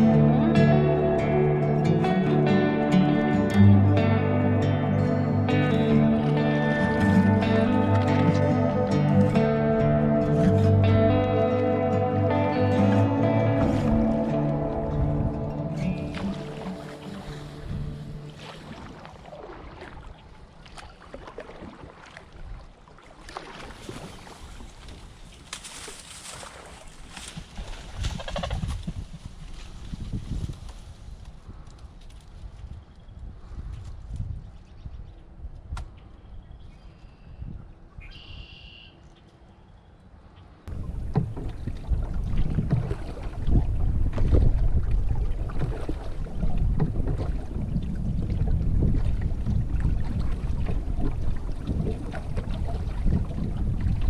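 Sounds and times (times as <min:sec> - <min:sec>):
water lapping and splashing: 0:05.4 - 0:32.8, 0:40.7 - 0:54.0
wind buffeting microphone: 0:13.2 - 0:19.2, 0:26.1 - 0:38.2, 0:40.7 - 0:54.0
reeds crackling against canoe hull: 0:23.0 - 0:33.0, 0:40.7 - 0:54.0.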